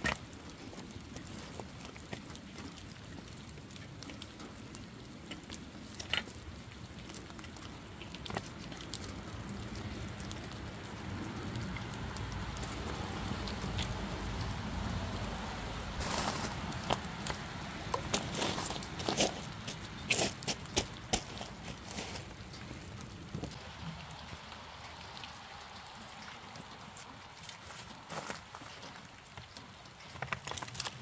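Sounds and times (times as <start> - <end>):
light rain rustling: 0.0 - 31.0
boots crunching on gravel: 16.0 - 17.4, 18.0 - 22.4.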